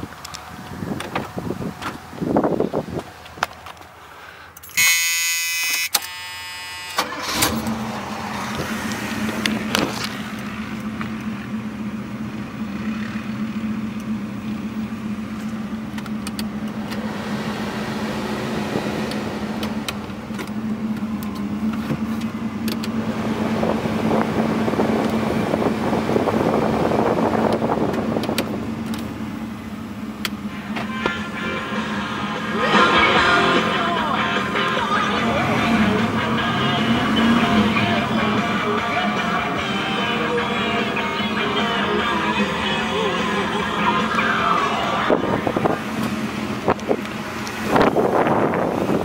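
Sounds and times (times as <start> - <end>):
car engine starting and idling: 0.0 - 49.0
dashboard warning buzzer: 4.7 - 7.6.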